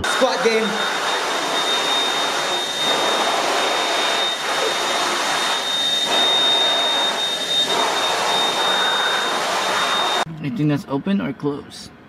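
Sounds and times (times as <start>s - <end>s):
electric hand dryer blowing: 0.0s - 10.3s.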